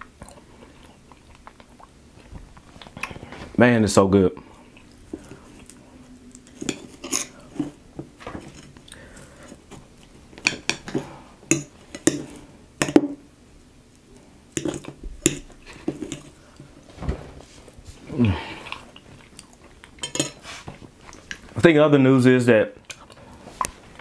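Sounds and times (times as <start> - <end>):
fork clicking and scraping dish: 6.4 - 7.7, 20.0 - 20.4.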